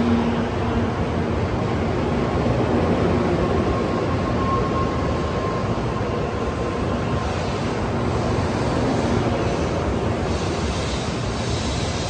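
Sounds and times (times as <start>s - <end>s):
faint train whine: 0.0s - 12.0s
train wheel and air rush: 0.0s - 12.0s.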